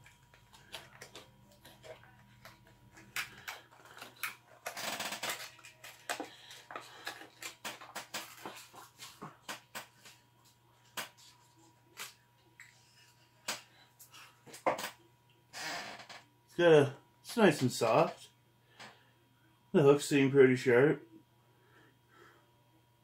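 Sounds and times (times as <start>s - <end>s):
soft plastic lure crinkling: 0.0s - 9.2s.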